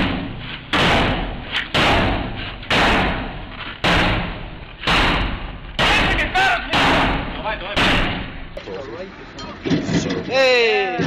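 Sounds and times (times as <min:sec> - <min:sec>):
loud echoing bangs: 0:00.0 - 0:08.6.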